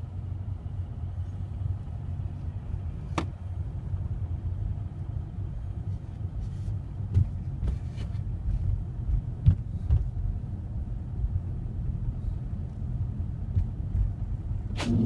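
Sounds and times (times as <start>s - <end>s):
car engine and tyres on snow: 0.0s - 15.0s.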